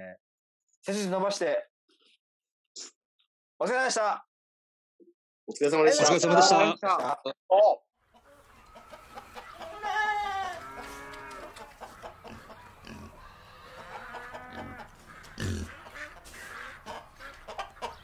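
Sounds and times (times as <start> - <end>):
poultry clucking: 8.0 - 18.0
faint clicks: 10.8 - 11.8.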